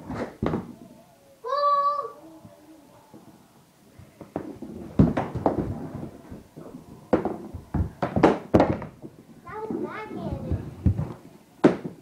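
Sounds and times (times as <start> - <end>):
hockey stick and ball hitting floor: 0.1 - 0.7, 4.2 - 5.8, 7.1 - 12.0.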